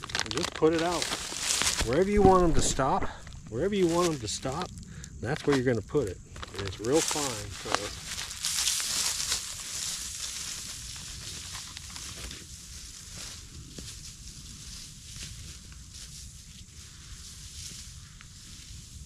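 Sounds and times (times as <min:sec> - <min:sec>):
granules pouring from a bag: 0:00.0 - 0:03.4
footsteps crunching through leaves: 0:00.0 - 0:04.6, 0:06.4 - 0:19.0.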